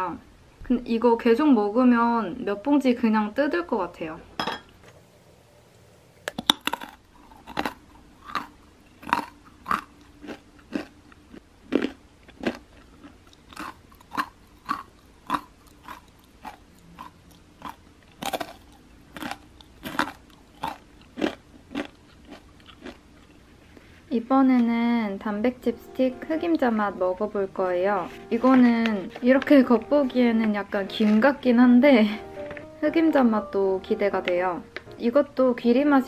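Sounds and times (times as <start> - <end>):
crunchy chewing of chip sticks: 6.2 - 23.9.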